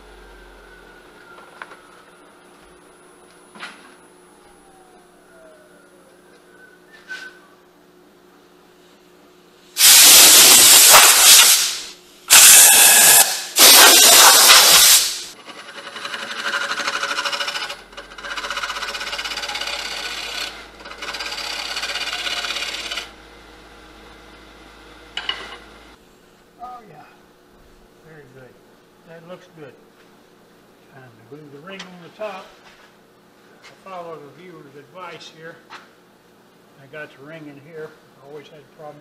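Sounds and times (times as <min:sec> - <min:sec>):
lathe humming: 0:15.3 - 0:26.0
rhythmic scraping on wood: 0:15.4 - 0:23.1
lathe tool cutting wood: 0:15.4 - 0:25.9.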